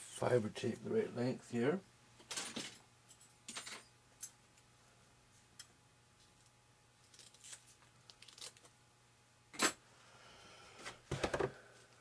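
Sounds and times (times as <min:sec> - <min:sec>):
crackly handling of tape: 0:05.6 - 0:08.8
tape rustling: 0:07.0 - 0:08.7.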